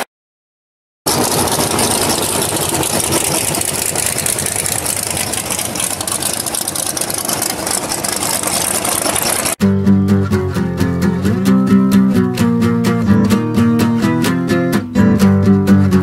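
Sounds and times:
race engine idling choppily: 1.1 - 9.6.

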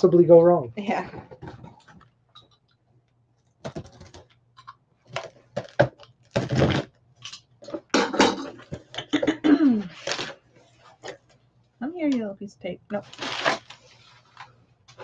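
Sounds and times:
blade slitting packing tape: 13.0 - 13.8.

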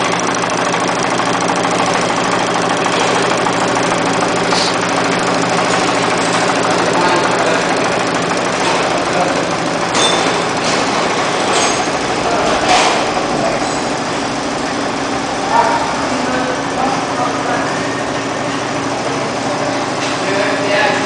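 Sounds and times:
knitting machine clattering: 0.0 - 15.1
sharp machine clicks: 0.0 - 16.8.

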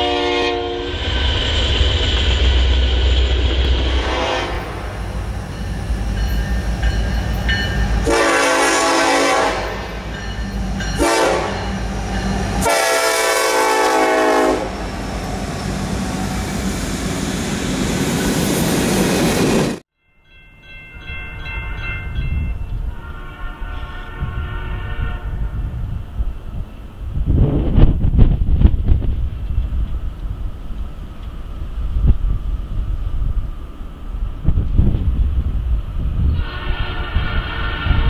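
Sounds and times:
locomotive horn blasts: 0.0 - 1.0, 3.8 - 4.9, 7.9 - 10.0, 10.9 - 11.8, 12.6 - 14.8, 22.9 - 25.7, 36.4 - 38.0
locomotive and wheels rumbling: 0.0 - 19.8.

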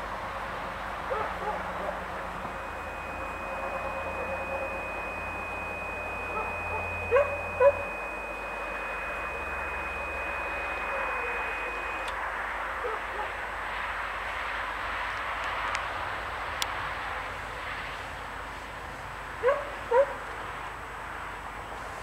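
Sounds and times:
level crossing warning tone: 1.0 - 14.2.

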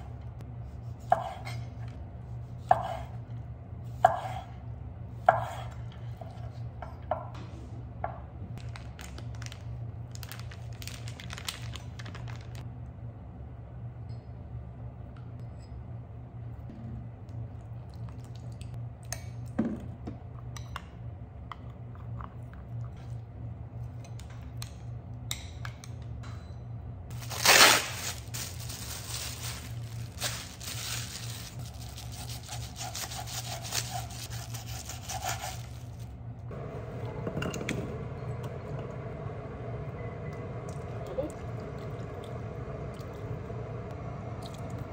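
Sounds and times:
steady low hum: 0.0 - 44.9
plastic bag crinkling: 8.6 - 12.6, 27.1 - 34.8
plastic bag tearing: 8.6 - 12.6, 27.1 - 36.0.

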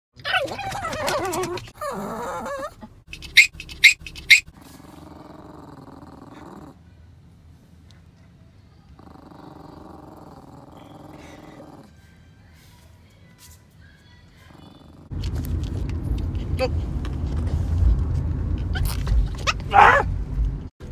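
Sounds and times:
small dog yapping: 0.2 - 4.5, 18.7 - 20.1
dog growling low: 0.7 - 2.9, 4.6 - 6.8, 9.0 - 11.9.

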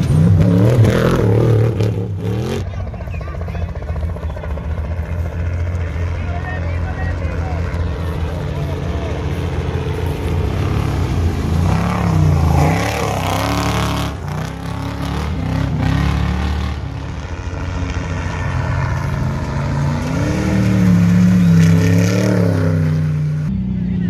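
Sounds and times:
racing trucks revving past: 0.0 - 24.0.

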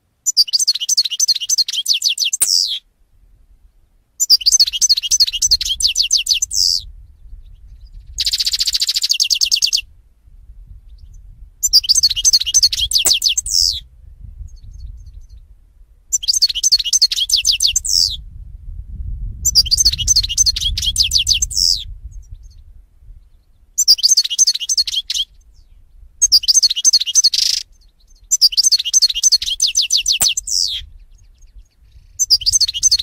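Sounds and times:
goldfinch twittering song: 0.2 - 2.8, 4.2 - 6.9, 7.5 - 9.8, 10.9 - 13.8, 16.1 - 18.2, 23.4 - 33.0
buzzy bird trill: 11.6 - 13.8.

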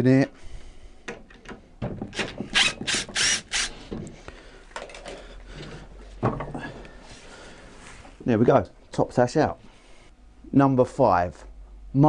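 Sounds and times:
cordless drill driver running: 2.2 - 3.7.

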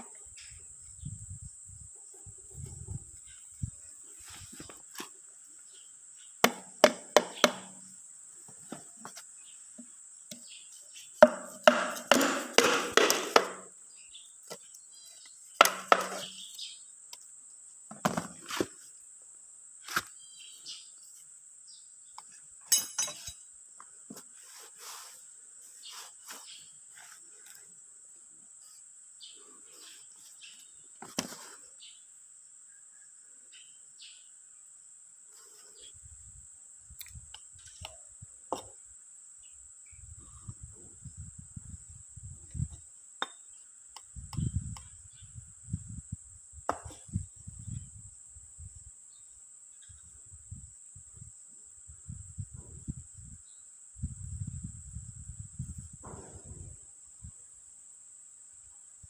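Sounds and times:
wooden bar knocking on piston: 11.2 - 13.6, 15.6 - 16.3.

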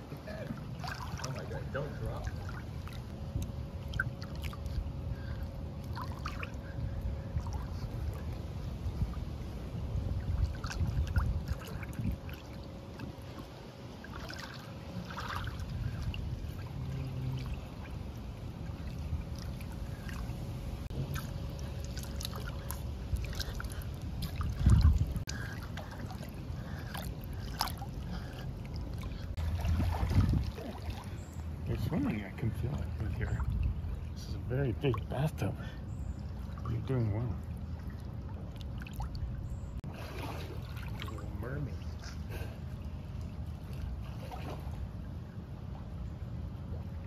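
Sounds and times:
pool water lapping and splashing: 0.0 - 47.0
low rumble: 15.0 - 31.8.

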